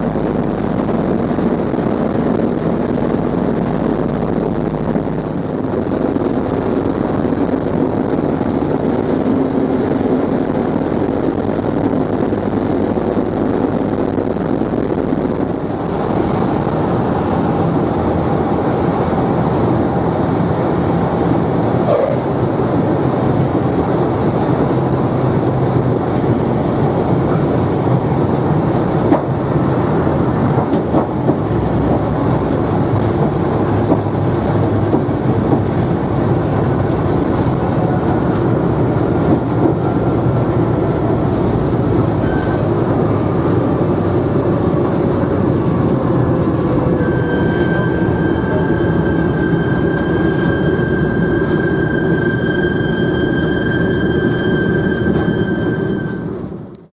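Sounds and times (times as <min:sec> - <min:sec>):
radial engines droning: 0:00.0 - 0:56.9
steady high tone: 0:46.8 - 0:56.7.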